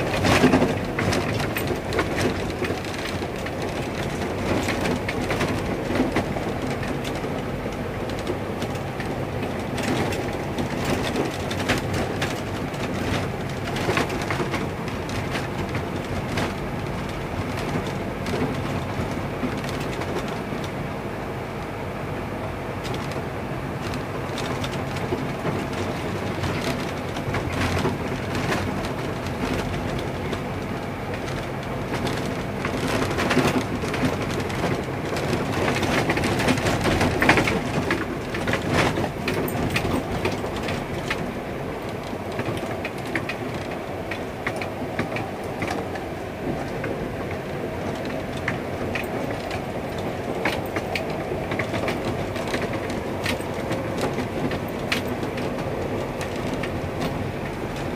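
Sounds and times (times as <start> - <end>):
knocks and rattles over road patches: 0.0 - 57.9
vehicle running and tyre noise: 0.0 - 57.9.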